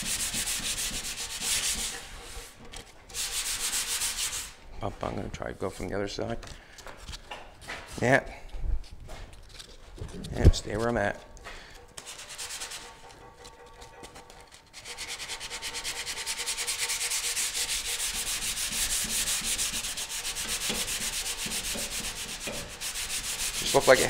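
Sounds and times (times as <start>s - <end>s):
sandpaper rubbing on metal: 0.0s - 4.6s, 12.0s - 24.0s.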